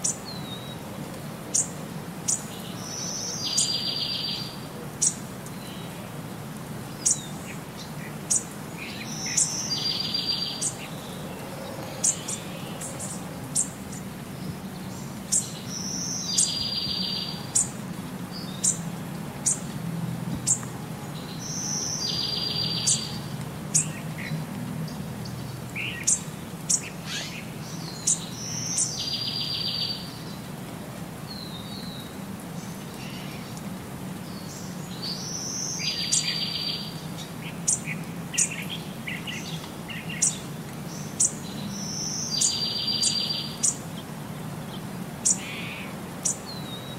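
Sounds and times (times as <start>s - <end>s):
birds chirping: 1.5s - 30.6s, 31.2s - 46.9s.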